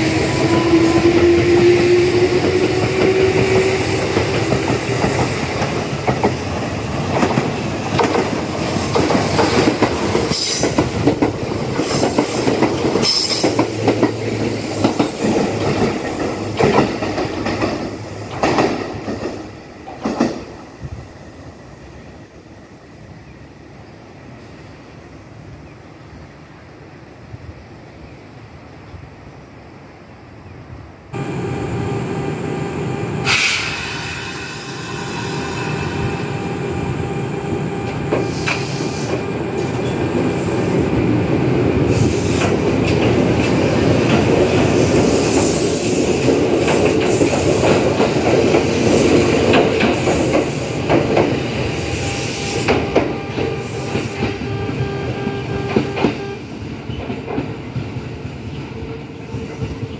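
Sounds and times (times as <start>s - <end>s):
train wheel and track noise: 0.0s - 59.9s
high-pitched squeal: 31.2s - 40.8s
train motor whine: 31.2s - 41.0s, 49.8s - 56.5s.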